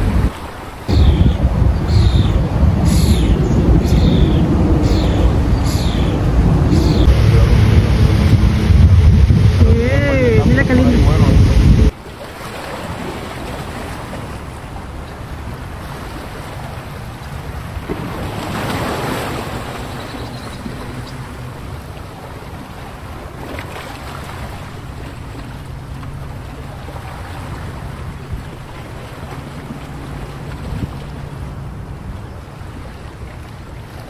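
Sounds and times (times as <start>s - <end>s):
wind blowing on microphone: 0.0s - 11.9s, 30.4s - 31.3s.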